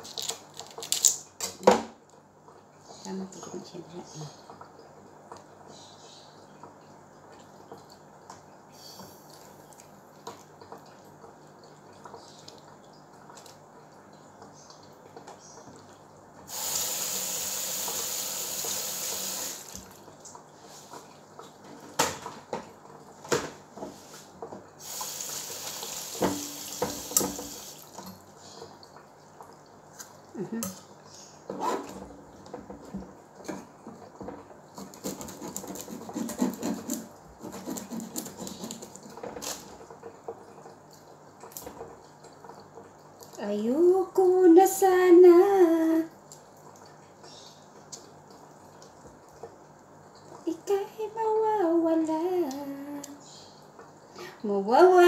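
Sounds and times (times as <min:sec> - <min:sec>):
tap running into steel sink: 0:24.9 - 0:27.7.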